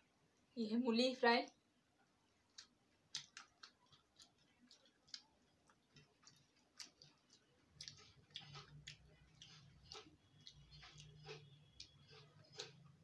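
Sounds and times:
eating mouth sounds: 5.9 - 13.0.

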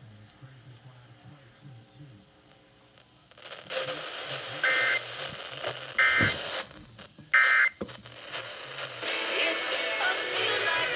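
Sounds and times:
radio static hiss: 0.0 - 10.9
harsh two-tone data burst buzz: 4.6 - 5.1, 5.9 - 6.5.

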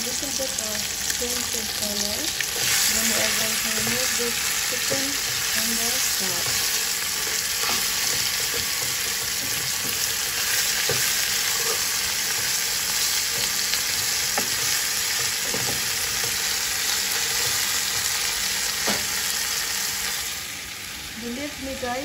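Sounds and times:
chicken sizzling in hot oil: 0.0 - 22.0.

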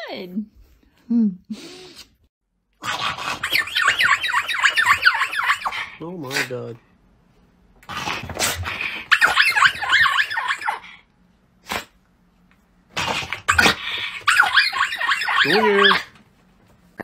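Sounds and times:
small dog growl-yapping: 7.8 - 10.8.

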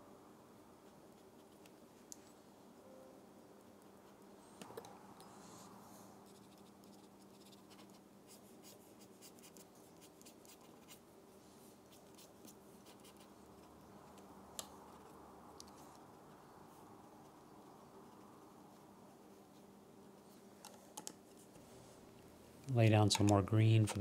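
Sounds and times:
pen nib scratching on paper: 0.8 - 1.8, 6.2 - 11.0, 11.9 - 16.4.

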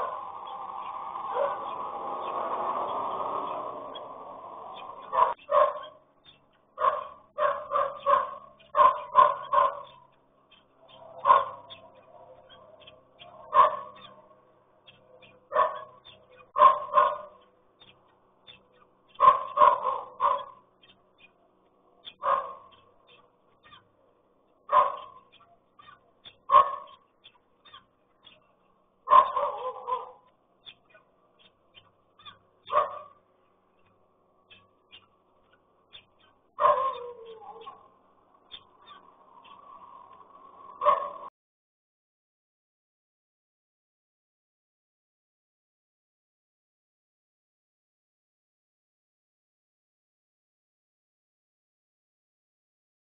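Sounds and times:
dog barking: 0.0 - 0.3, 1.3 - 1.8, 5.0 - 6.0, 6.8 - 10.1, 11.1 - 14.2, 14.9 - 17.4, 19.1 - 20.6, 22.1 - 23.8, 24.7 - 27.0, 29.0 - 30.3, 32.2 - 33.2, 36.6 - 37.9, 40.8 - 41.3.

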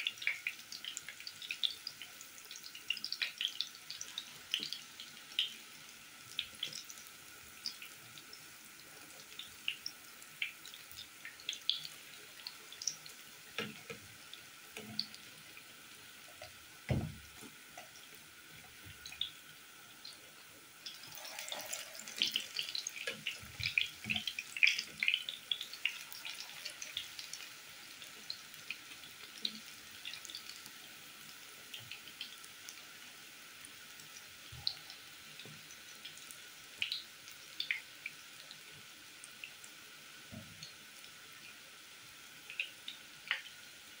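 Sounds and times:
frying oil sizzling and popping: 0.0 - 44.0
dull knock: 16.9 - 17.2.

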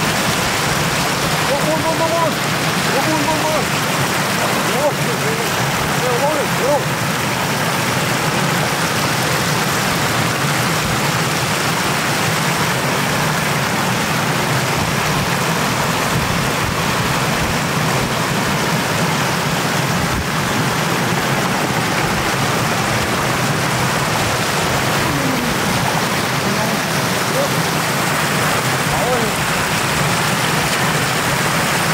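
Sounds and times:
floodwater rushing over a road: 0.0 - 31.9.

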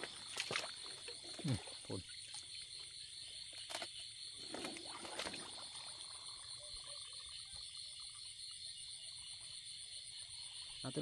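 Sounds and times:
footsteps splashing in mud and water: 0.0 - 2.6, 3.6 - 5.8
night insects chorus: 0.0 - 11.0.

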